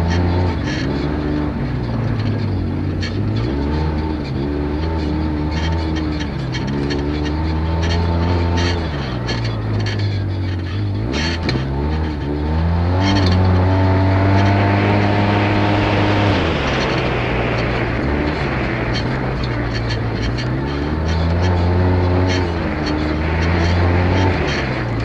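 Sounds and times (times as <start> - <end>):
off-road vehicle engine: 0.0 - 25.0
rushing noise: 12.2 - 25.0.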